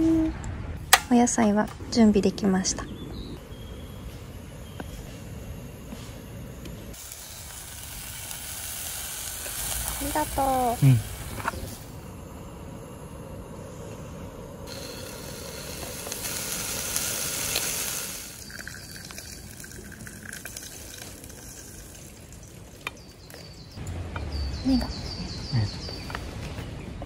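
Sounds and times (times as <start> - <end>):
meat sizzling in a pan: 6.9 - 11.8, 14.7 - 23.3.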